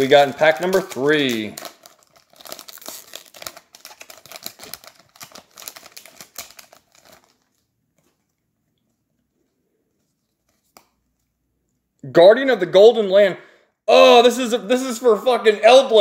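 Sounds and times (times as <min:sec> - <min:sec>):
foil wrapper crinkling and tearing: 0:00.0 - 0:07.7.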